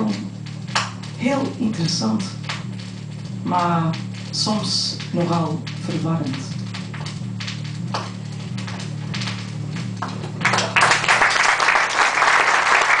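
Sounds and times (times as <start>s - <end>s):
low steady hum: 0.0s - 13.0s
audience applause: 10.0s - 13.0s.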